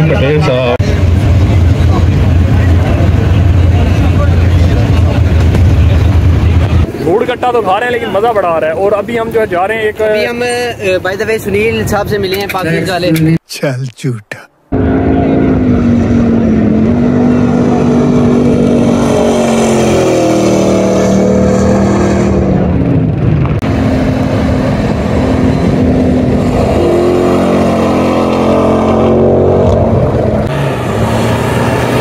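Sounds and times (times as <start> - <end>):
rally cars racing past: 14.8 - 32.0.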